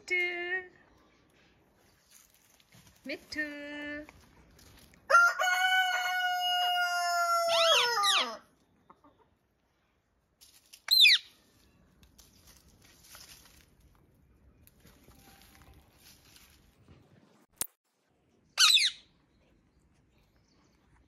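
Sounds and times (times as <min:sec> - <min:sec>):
rooster crowing: 0:05.1 - 0:08.4
shrill bird call: 0:18.6 - 0:19.1.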